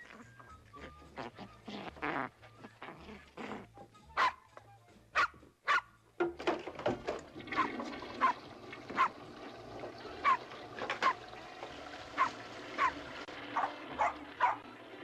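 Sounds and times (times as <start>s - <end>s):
small dog yipping: 0.0s - 4.6s, 5.2s - 5.9s, 7.6s - 9.2s, 10.2s - 11.2s, 12.2s - 13.0s, 13.6s - 14.6s.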